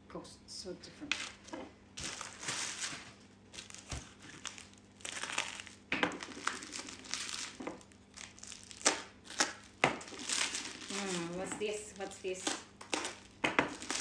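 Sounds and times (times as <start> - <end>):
bubble wrap crinkling: 1.1 - 14.0.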